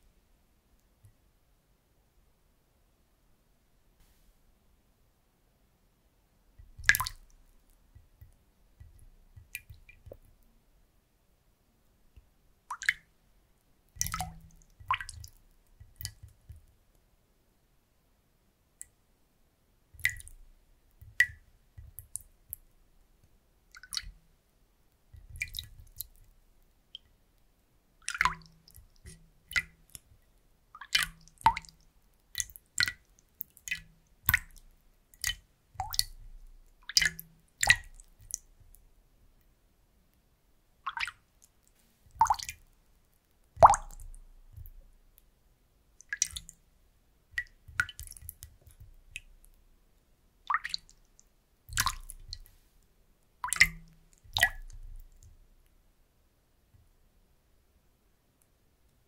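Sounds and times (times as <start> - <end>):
water drips and plops: 6.6 - 10.5, 12.1 - 13.2, 13.9 - 16.8, 20.0 - 24.3, 25.0 - 27.2, 28.0 - 38.9, 40.8 - 45.2, 46.0 - 46.7, 47.3 - 49.7, 50.4 - 52.7, 53.4 - 55.4
wooden spoon dipping into water: 51.7 - 52.6.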